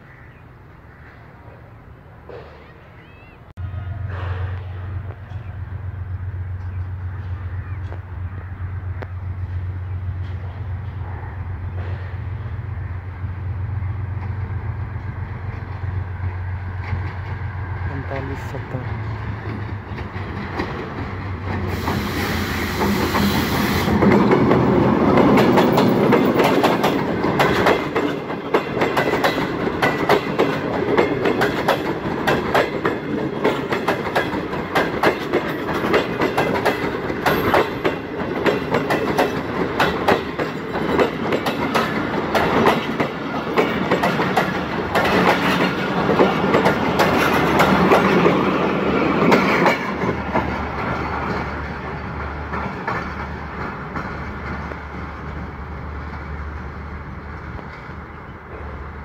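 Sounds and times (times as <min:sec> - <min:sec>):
diesel locomotive engine: 0:00.0 - 0:59.0
train wheels clattering on rails: 0:08.9 - 0:12.6, 0:13.9 - 0:56.7.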